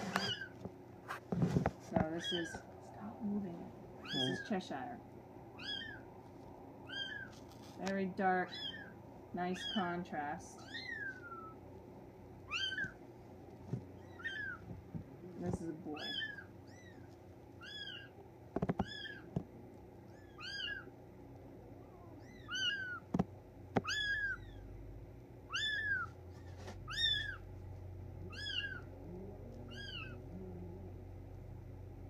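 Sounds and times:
kitten mewing: 5.6 - 6.0, 12.5 - 13.0, 14.0 - 14.6, 16.0 - 18.2, 20.1 - 20.9, 21.7 - 23.1, 23.8 - 24.6, 25.5 - 26.1, 26.9 - 27.4, 28.2 - 31.0.

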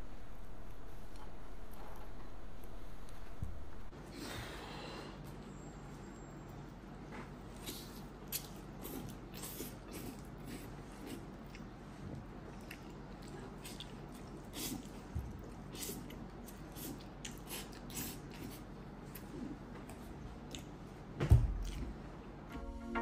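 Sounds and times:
chewing: 7.5 - 21.0, 21.6 - 22.0.

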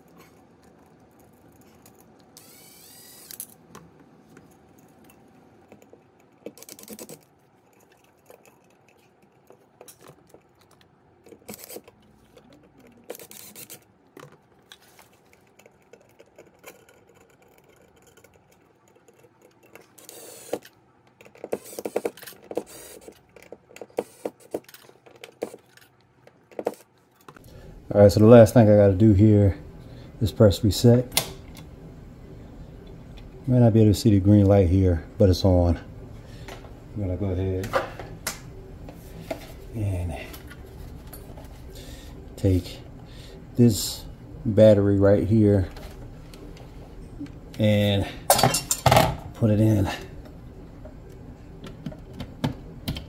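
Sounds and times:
screws clicking and scraping: 0.8 - 3.6, 5.8 - 13.9, 15.2 - 25.9.

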